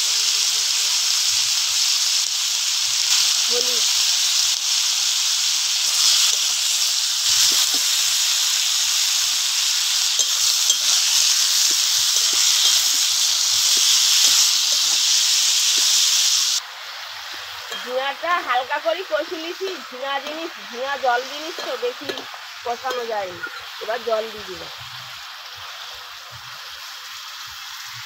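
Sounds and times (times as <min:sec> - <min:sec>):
vegetables sizzling in oil: 0:00.0 - 0:28.0
spatula scraping and tapping pan: 0:10.1 - 0:13.0, 0:17.3 - 0:18.1, 0:21.5 - 0:23.8.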